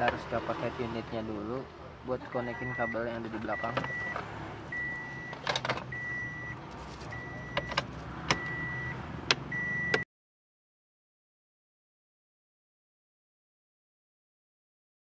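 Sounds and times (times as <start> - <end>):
car warning chime beeping: 2.2 - 10.1.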